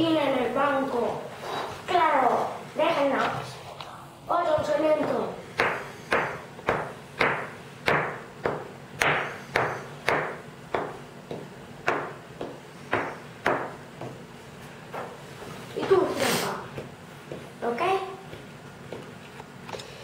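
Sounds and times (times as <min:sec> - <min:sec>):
sharp knocks on a tabletop: 0:05.0 - 0:13.8.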